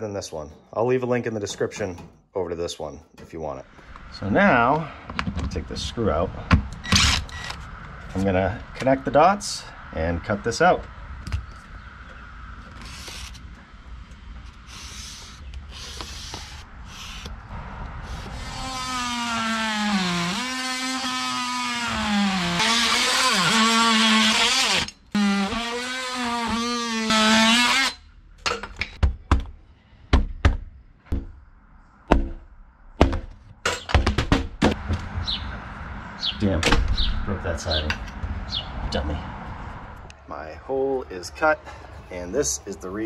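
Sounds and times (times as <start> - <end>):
oscillating multi-tool cutting wood: 14.5 - 28.0
sharp knocks breaking siding: 32.1 - 35.2.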